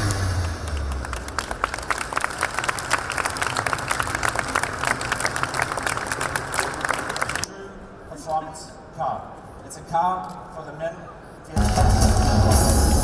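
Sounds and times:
audience applauding: 0.0 - 7.5
loud show music: 11.6 - 13.0.

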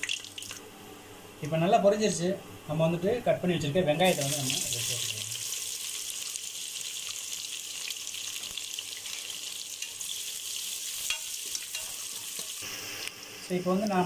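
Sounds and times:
onions sizzling in hot oil: 4.0 - 14.0.

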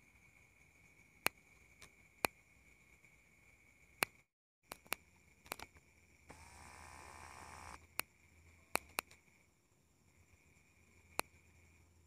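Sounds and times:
insects trilling: 6.0 - 11.9
sharp clicks: 6.3 - 8.1.

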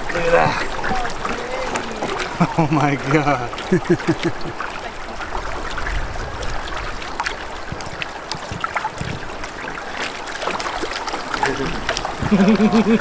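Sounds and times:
river water lapping against boat: 0.0 - 13.0
small drips and splashes: 0.0 - 13.0.

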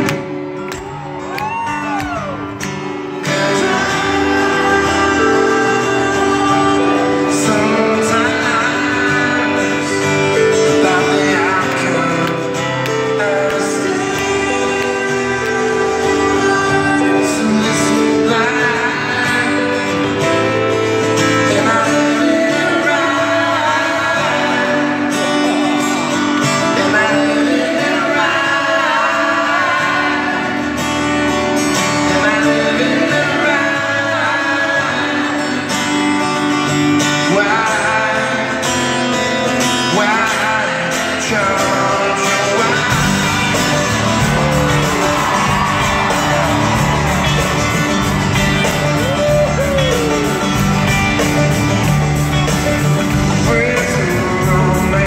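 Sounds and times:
acoustic guitar strumming: 0.0 - 55.0
bass: 0.0 - 55.0
electric guitars: 0.0 - 55.0
male lead vocal: 1.2 - 55.0
drums: 40.0 - 55.0.

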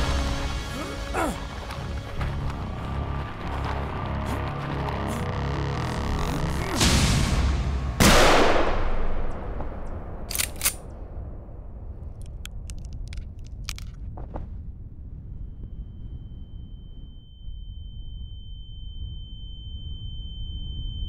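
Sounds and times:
gunshot echoing: 8.0 - 10.9
sharp clicks: 9.3 - 10.9, 12.1 - 14.0
thin high tone: 15.7 - 21.0.

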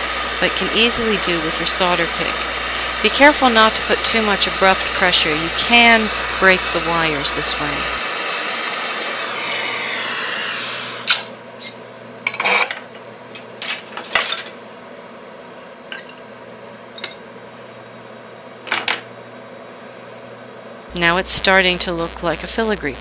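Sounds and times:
torch flame hissing: 0.0 - 11.4
torch click: 11.0 - 11.8.

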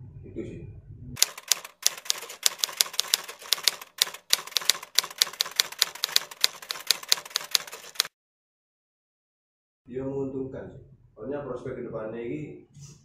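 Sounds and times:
typing key clicks: 1.2 - 8.1.

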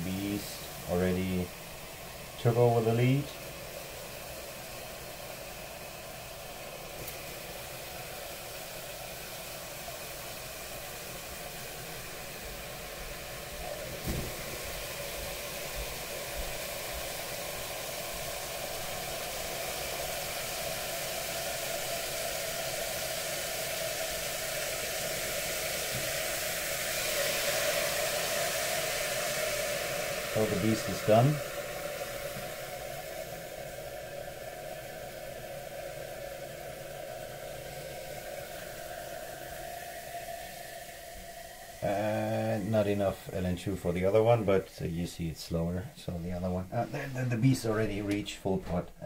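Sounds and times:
liquid nitrogen hissing: 0.0 - 49.0.

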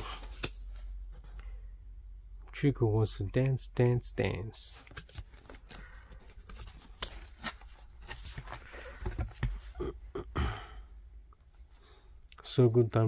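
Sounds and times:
page turning: 4.8 - 9.7
cardboard book pages handled: 4.8 - 9.8.

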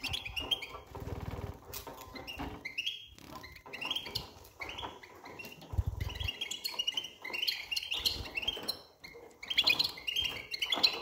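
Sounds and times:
young birds twittering: 0.0 - 1.4, 2.0 - 11.0.

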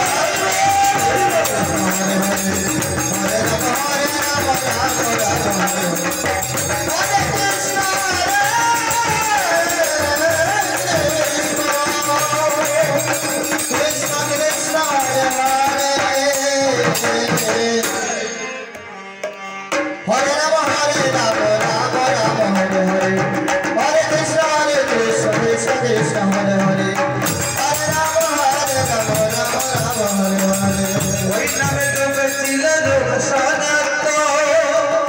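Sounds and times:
hand cymbals jingling: 0.0 - 17.6, 27.2 - 32.7
harmonium melody: 0.0 - 23.7
drums beating: 0.0 - 35.0.

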